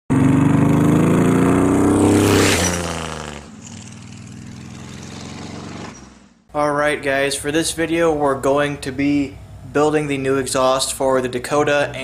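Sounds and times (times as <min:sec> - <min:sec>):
truck accelerating past: 0:00.1 - 0:06.5.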